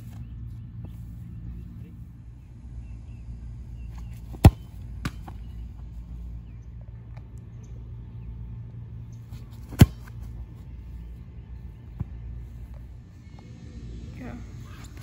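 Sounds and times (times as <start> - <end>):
steady low rumble: 0.0 - 15.0
soccer ball kicks: 4.0 - 5.6, 9.5 - 10.6.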